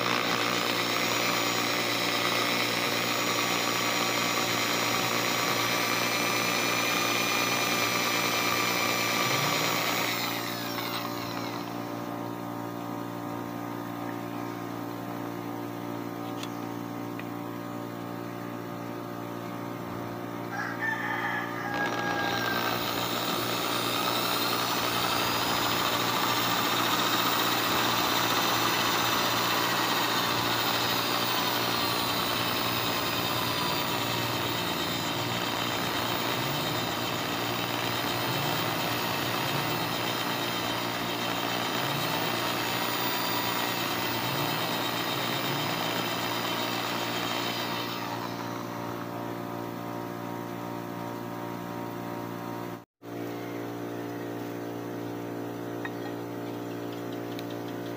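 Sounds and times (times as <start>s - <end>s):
electric drill whining: 0.0s - 12.4s, 21.7s - 49.2s.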